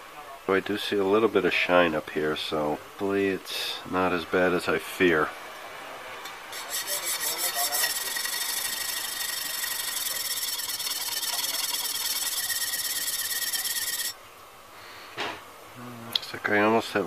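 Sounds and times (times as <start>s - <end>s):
plane iron scraping on sharpening plate: 6.5s - 14.2s.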